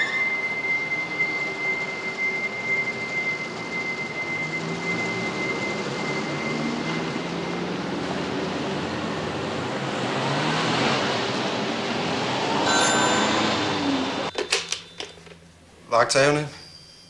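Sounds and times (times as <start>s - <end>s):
car engines passing: 6.4s - 14.3s.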